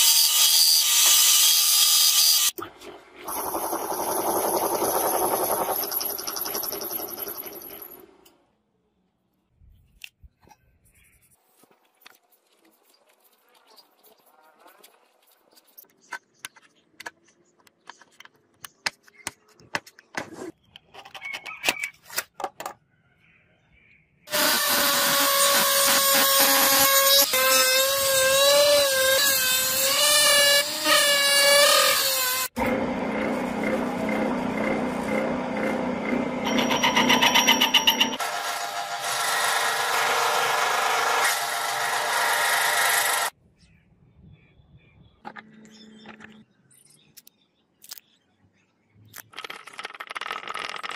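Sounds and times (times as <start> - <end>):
rotary tool whining as it cuts: 24.3 - 43.3
metal lathe running: 32.6 - 38.2.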